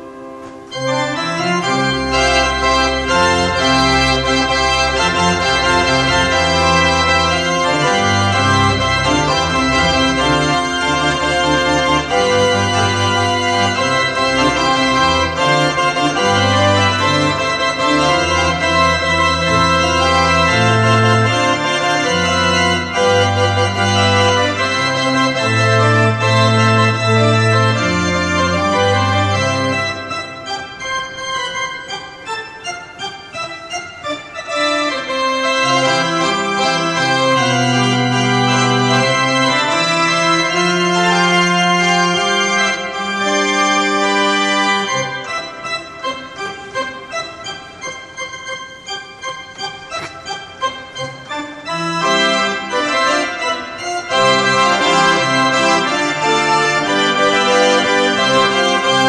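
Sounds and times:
pipe organ playing loudly: 0.0s - 59.0s.

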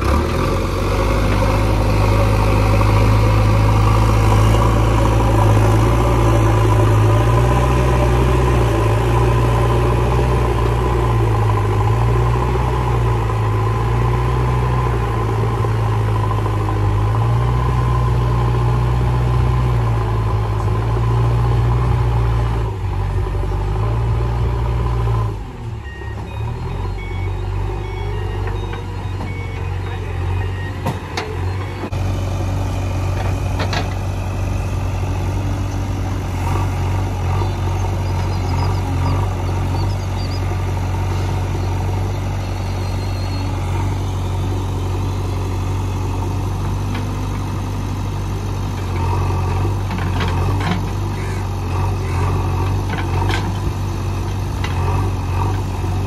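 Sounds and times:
heavy diesel engine running: 0.0s - 56.0s.

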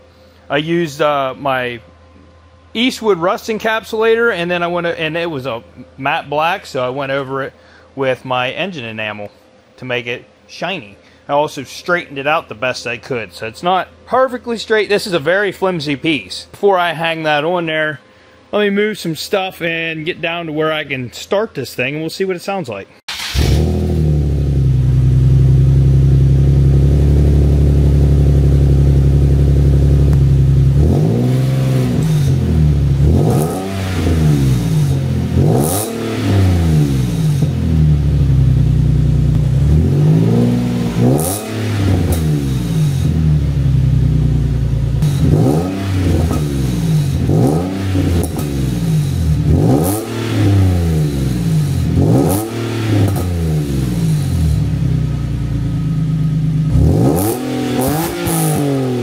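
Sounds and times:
car engine revving and idling: 23.1s - 59.0s.

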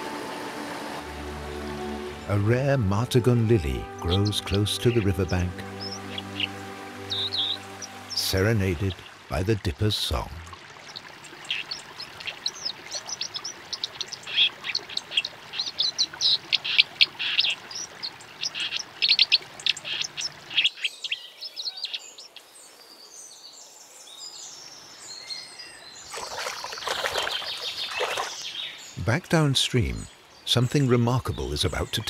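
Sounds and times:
bird singing high warbling notes: 0.0s - 9.3s.

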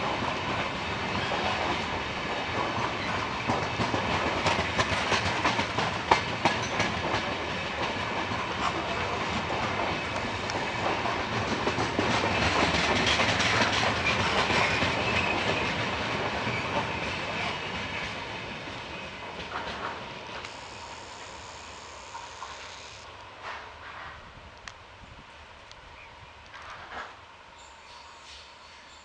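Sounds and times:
train wheels clacking over rail joints: 0.0s - 20.5s, 26.5s - 27.2s
train rumble: 0.0s - 29.0s.

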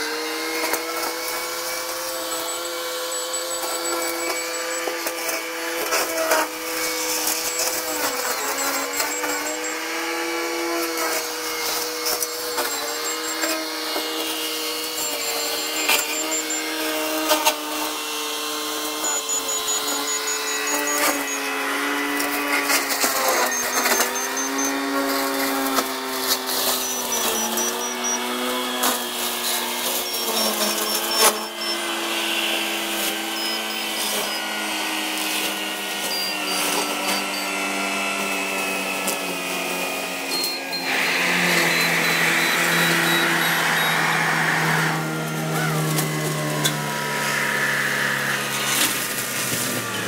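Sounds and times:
machine whine: 0.0s - 50.0s.

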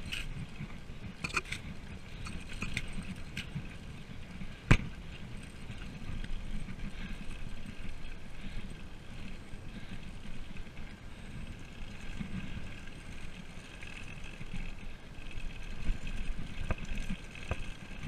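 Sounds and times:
bike rattling: 0.0s - 18.0s
bike tyres rumbling on gravel: 0.0s - 18.0s.

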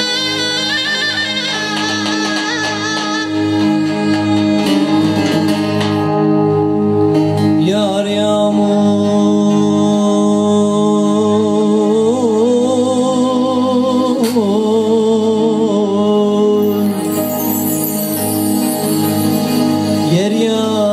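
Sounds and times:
plucked string strokes: 0.0s - 7.7s
droning string accompaniment: 0.0s - 10.6s, 15.9s - 20.9s.

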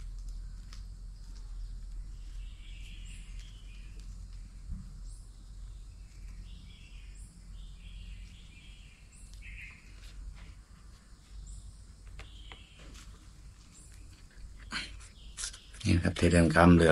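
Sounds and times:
birds chirping: 0.0s - 16.9s
low outdoor rumble: 0.0s - 16.9s
high bird call: 8.5s - 10.0s.

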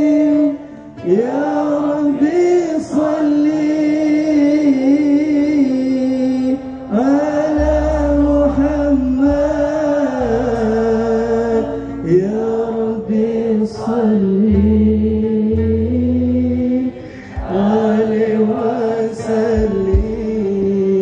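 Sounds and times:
man singing through microphone: 0.0s - 21.0s
low bass notes: 3.3s - 21.0s.

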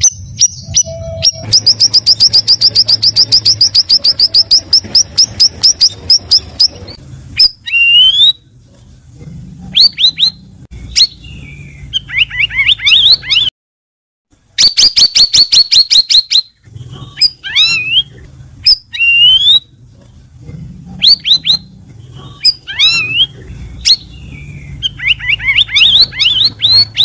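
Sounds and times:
bird rising whistle: 0.4s - 4.6s
songbird singing sharp chips: 22.4s - 27.0s.

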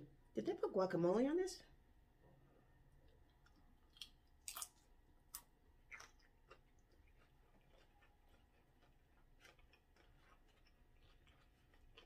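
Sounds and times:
crunchy chips chewing: 3.2s - 12.0s.

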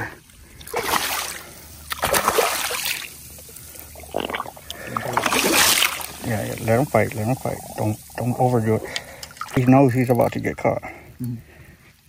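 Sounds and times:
fish splashing in water: 0.6s - 6.3s.

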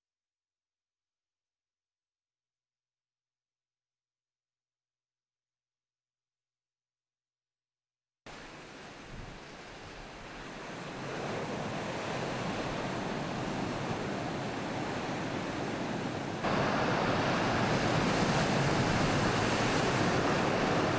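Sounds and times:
ocean waves breaking: 8.3s - 20.9s.

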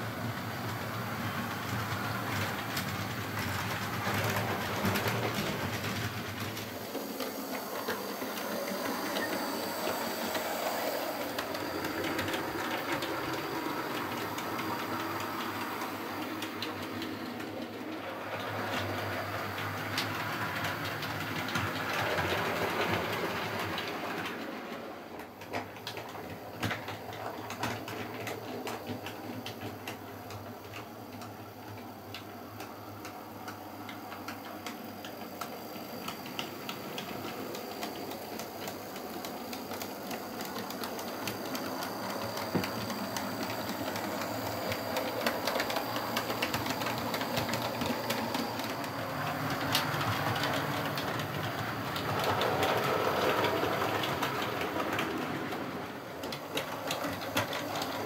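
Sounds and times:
wheels clicking over rail joints: 0.6s - 58.0s
model train motor whirring: 34.4s - 55.6s.

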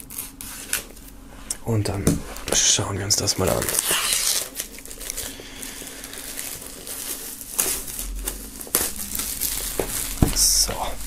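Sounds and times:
plastic shrink wrap crinkling: 0.0s - 1.2s, 1.8s - 11.0s.

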